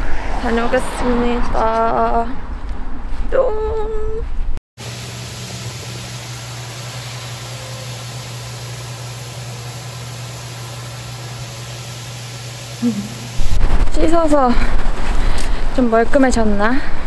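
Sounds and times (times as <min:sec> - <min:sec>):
constant low machine hum: 0:04.8 - 0:15.6
steady rushing noise: 0:13.4 - 0:17.0.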